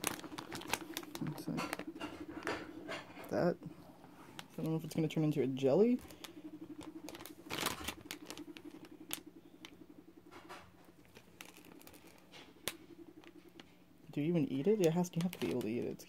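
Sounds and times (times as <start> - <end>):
candy wrapper crinkling: 0.0 - 2.5, 6.0 - 9.8, 11.0 - 12.4, 15.2 - 15.8
steady low hum: 0.0 - 16.0.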